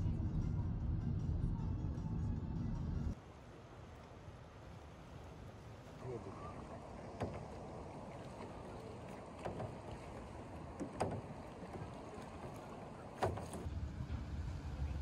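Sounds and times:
low steady rumble: 0:00.0 - 0:03.2, 0:04.7 - 0:15.0
wind: 0:00.0 - 0:15.0
water wash: 0:03.1 - 0:15.0
paddle splashing in water: 0:03.2 - 0:15.0.

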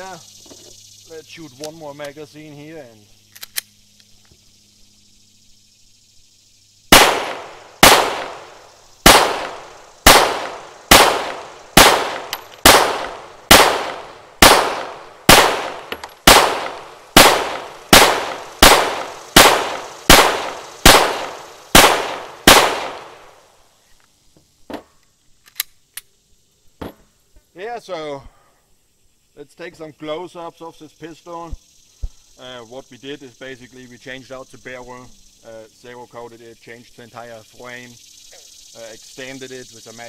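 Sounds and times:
pistol shots: 0:06.9 - 0:23.4.

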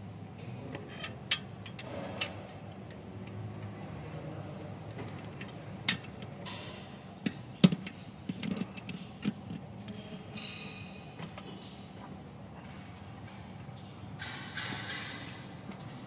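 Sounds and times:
metal tools clicking and clinking: 0:07.6 - 0:11.0
sharp metal knocks: 0:14.2 - 0:15.5.

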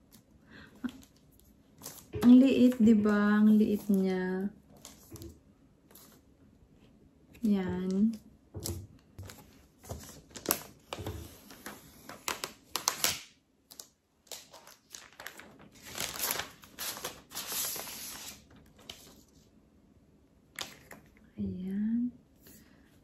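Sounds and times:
plastic wrap crinkling: 0:09.2 - 0:19.2.

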